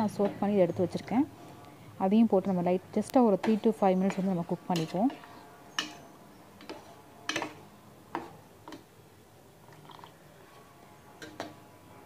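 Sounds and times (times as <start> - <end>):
metal spoon clinking on saucepan: 5.7 - 7.6.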